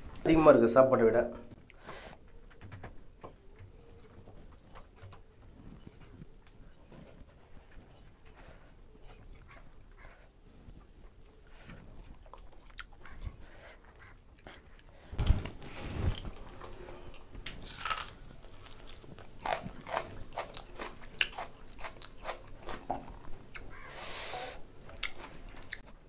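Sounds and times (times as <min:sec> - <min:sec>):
man chewing and lip-smacking: 0:10.8 - 0:15.4, 0:16.1 - 0:24.1, 0:24.8 - 0:26.0.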